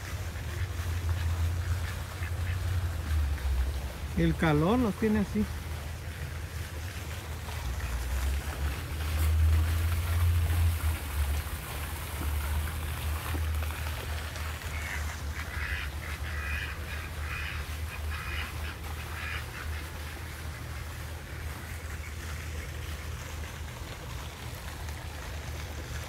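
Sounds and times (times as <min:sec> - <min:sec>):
ducks quacking: 0:00.0 - 0:03.4, 0:14.6 - 0:21.1.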